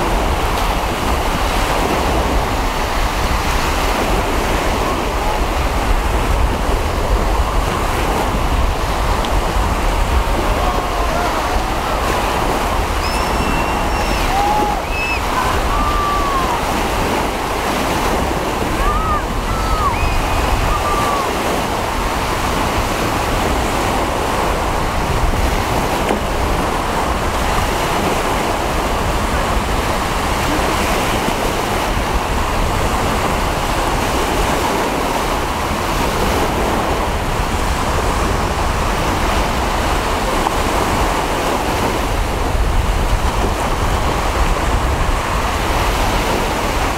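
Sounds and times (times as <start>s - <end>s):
sea waves washing: 0.0s - 46.9s
wind buffeting microphone: 0.0s - 46.9s
short high calls: 13.0s - 16.6s.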